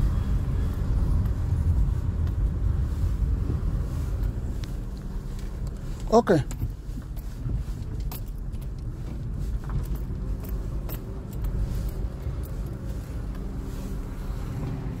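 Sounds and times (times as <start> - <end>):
car engine rumbling: 0.0 - 15.0.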